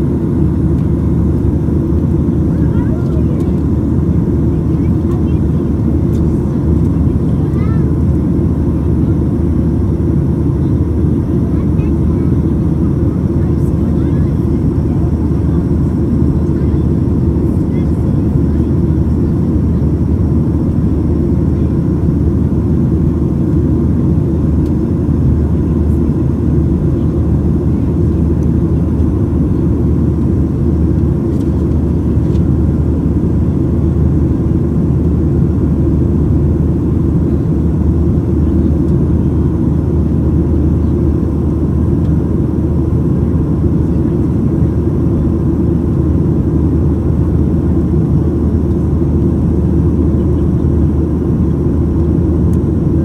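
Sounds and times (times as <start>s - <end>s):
jet engines running: 0.0s - 53.0s.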